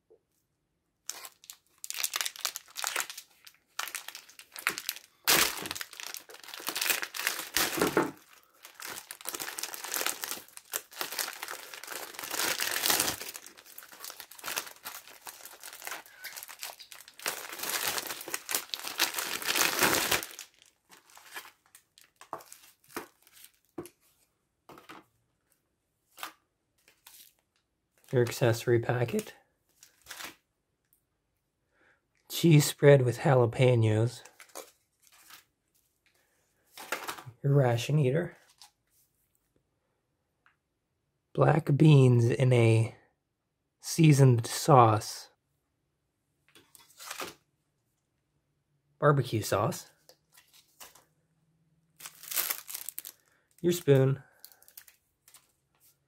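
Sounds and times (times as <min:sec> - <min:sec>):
plastic pouch crinkling and tearing: 0:01.1 - 0:23.7, 0:29.1 - 0:30.4, 0:46.8 - 0:47.4, 0:52.0 - 0:55.5.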